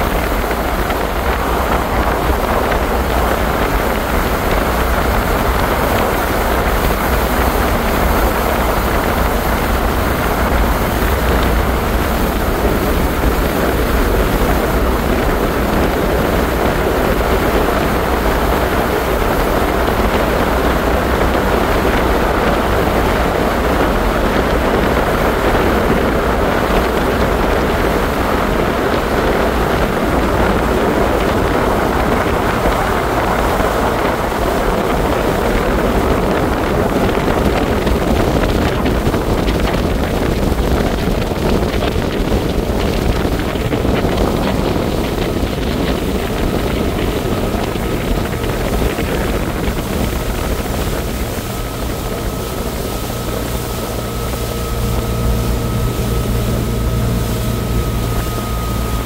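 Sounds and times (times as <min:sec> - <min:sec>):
motorboat engine: 0:00.0 - 0:59.0
water rushing in wake: 0:00.0 - 0:59.0
wind buffeting microphone: 0:00.0 - 0:59.0.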